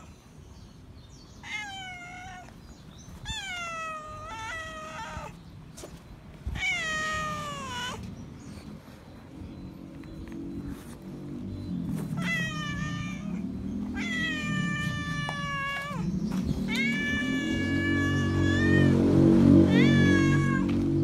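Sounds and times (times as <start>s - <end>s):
cat meowing loudly: 1.4s - 2.6s, 3.2s - 5.4s, 6.5s - 8.0s, 12.2s - 16.0s, 16.7s - 20.9s.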